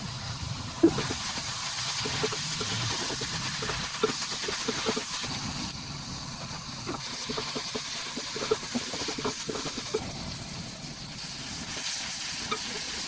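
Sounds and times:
onions sizzling in pan: 0.0s - 13.0s
spatula scraping and tapping pan: 0.8s - 5.2s, 6.9s - 10.0s.

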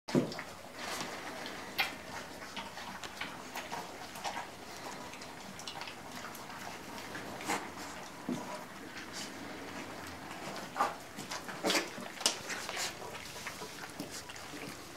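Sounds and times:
puppies chewing kibble: 0.1s - 14.9s.

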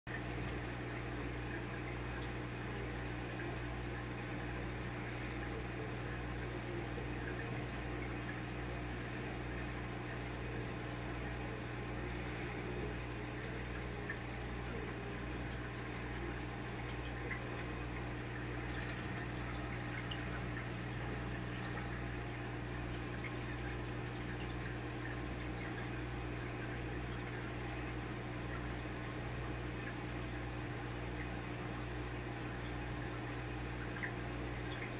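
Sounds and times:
aquarium air bubbling: 0.1s - 34.9s
low equipment hum: 0.1s - 34.9s.

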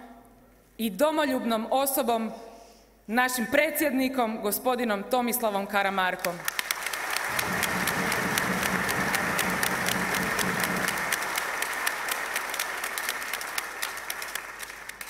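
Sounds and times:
large crowd applauding: 6.4s - 15.0s.

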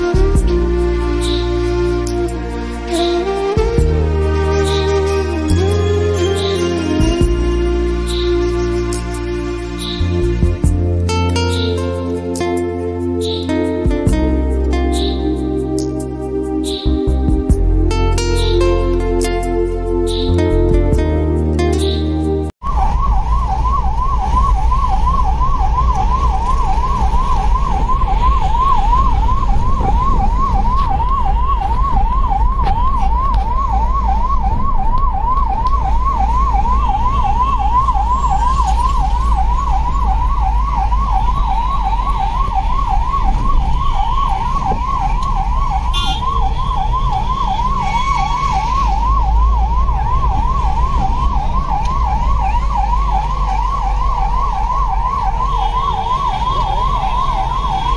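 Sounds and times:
ambulance siren yelping: 0.0s - 57.9s.

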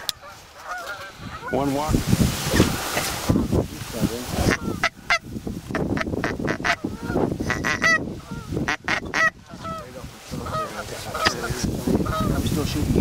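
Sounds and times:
goose honking: 0.0s - 1.7s, 4.4s - 12.4s
wind rumble on microphone: 0.0s - 13.0s.

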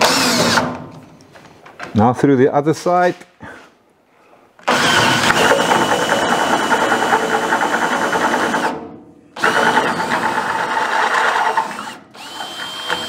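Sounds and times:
electric drill boring steel: 0.0s - 0.6s, 4.6s - 8.7s, 9.4s - 13.0s.

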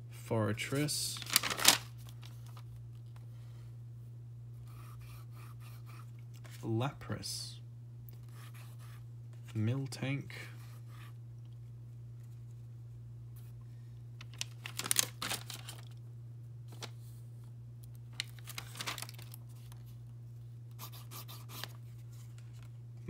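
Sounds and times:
steady low hum: 0.0s - 23.0s
plastic sleeves crinkling: 1.1s - 3.2s, 14.2s - 16.0s, 17.8s - 19.9s.

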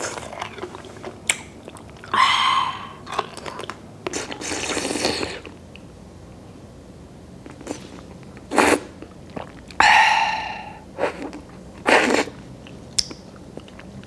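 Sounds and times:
woman breathing sharply: 9.8s - 10.8s.

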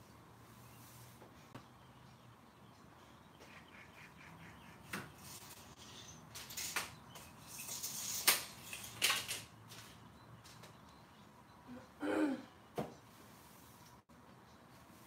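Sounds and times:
broom sweeping concrete floor: 0.4s - 1.4s, 5.1s - 9.1s, 13.1s - 14.0s.

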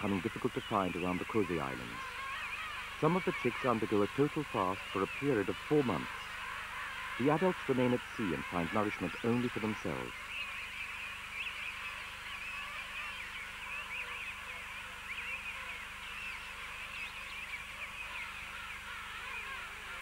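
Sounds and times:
penguins calling: 0.0s - 10.2s.

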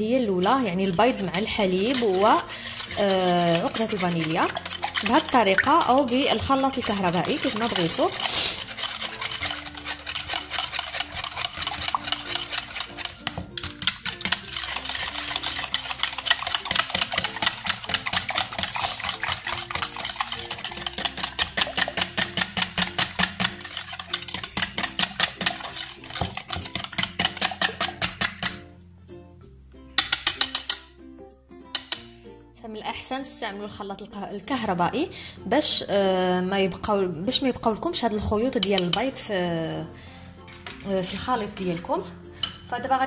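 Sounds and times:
whisk rattling in plastic jug: 0.5s - 28.6s, 40.6s - 41.9s.

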